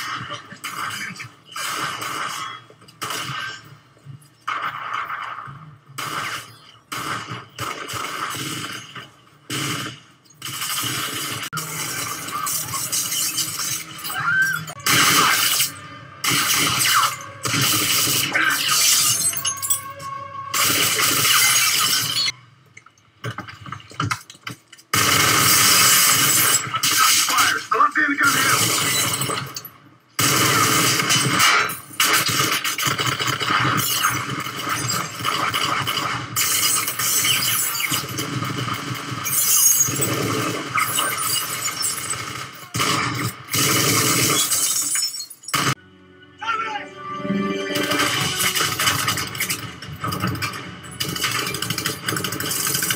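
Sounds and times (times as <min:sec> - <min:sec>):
automatic gunfire: 0:42.0 - 0:44.5
dishes and glass shattering: 0:44.4 - 0:45.6.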